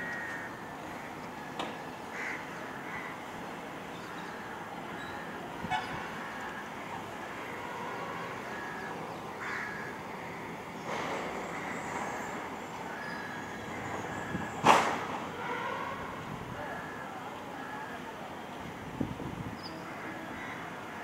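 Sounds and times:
distant traffic hum: 0.0s - 21.0s
vehicle horn toots: 15.3s - 16.2s.

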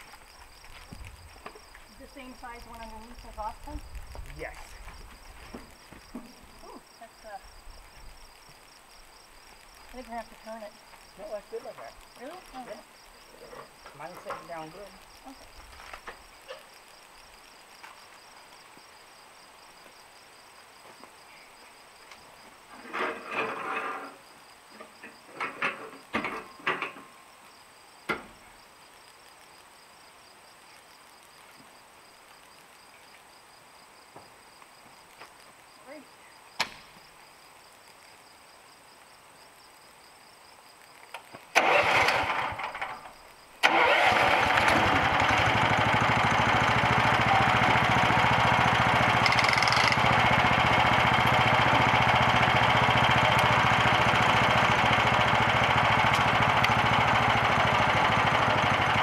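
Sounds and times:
engine cranking and running: 41.6s - 59.0s.

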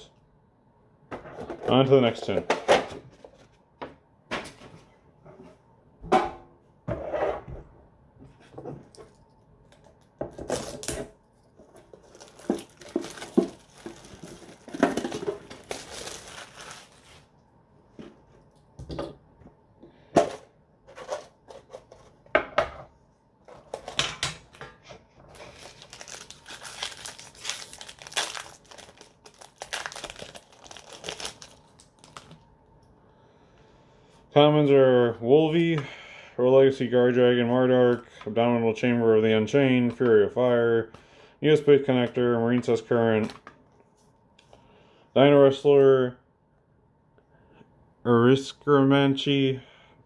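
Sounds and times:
plastic wrap crinkling and tearing: 10.4s - 11.0s, 11.7s - 17.3s, 25.3s - 32.4s.

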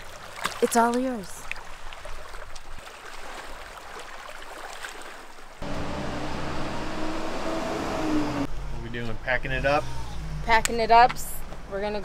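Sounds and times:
small waves lapping on rocks: 0.0s - 5.6s
steady engine hum: 5.6s - 12.0s.

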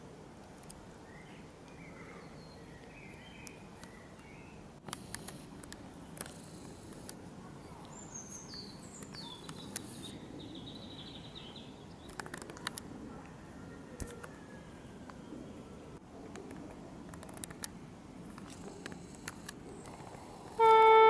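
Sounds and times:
sharp clicks: 12.0s - 12.9s, 16.3s - 20.1s.

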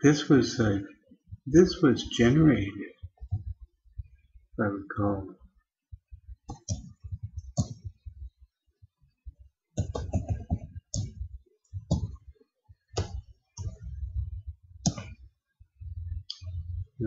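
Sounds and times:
computer keyboard typing: 6.5s - 7.9s, 9.8s - 12.2s.

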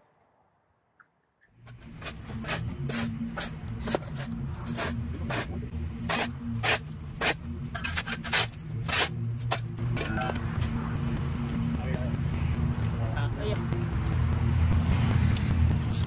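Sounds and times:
steady low hum: 1.6s - 14.8s
shovel scraping concrete: 1.7s - 9.6s.

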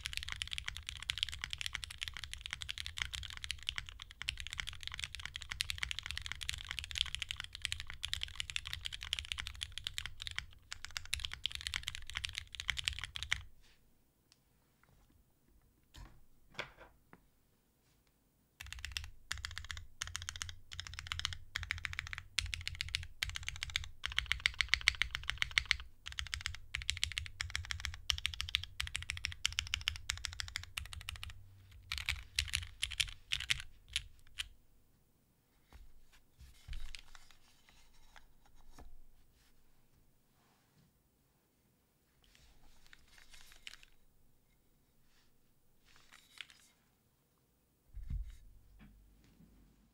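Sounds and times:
mechanical keyboard keys pressed: 0.0s - 13.4s, 18.6s - 34.5s.

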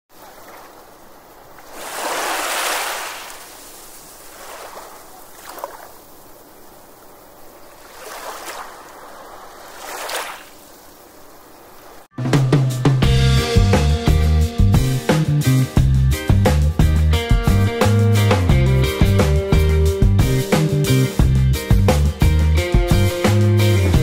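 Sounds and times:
ocean waves washing in: 0.1s - 12.1s
music: 12.1s - 24.0s.

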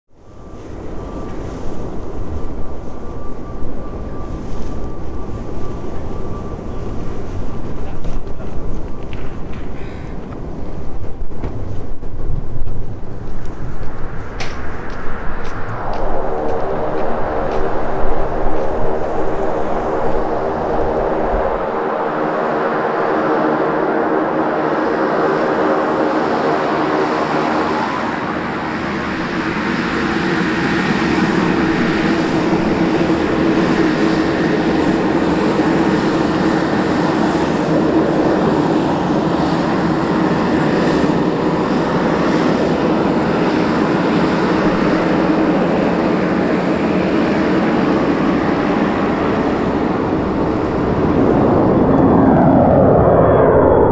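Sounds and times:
turboprop engines droning: 0.1s - 53.9s.

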